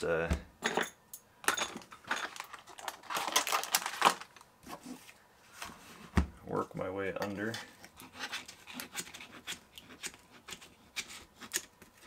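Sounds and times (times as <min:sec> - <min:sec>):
pry tool scraping and clicking: 0:07.5 - 0:11.9.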